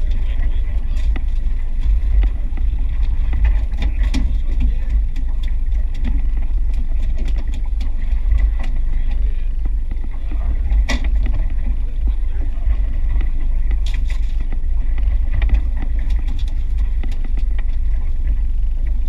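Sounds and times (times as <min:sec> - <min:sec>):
boat motor rumbling: 0:00.0 - 0:19.0
wind on microphone: 0:00.0 - 0:19.0
gear clicking and knocking: 0:00.8 - 0:08.8.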